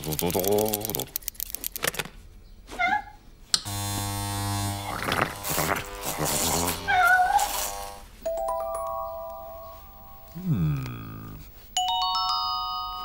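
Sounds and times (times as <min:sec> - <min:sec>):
electric hair clipper buzzing: 0:03.6 - 0:08.1
cat-like yowl: 0:06.8 - 0:07.4.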